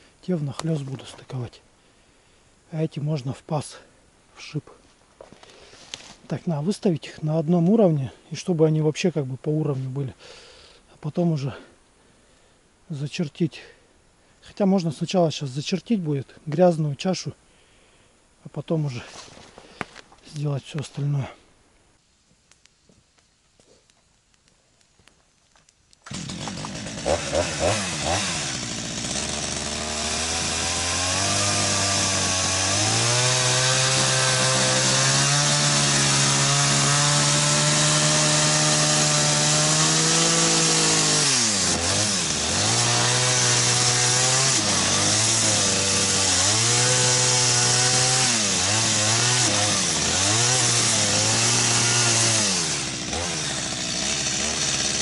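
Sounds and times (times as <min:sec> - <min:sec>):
chainsaw revving: 0:26.0 - 0:55.0.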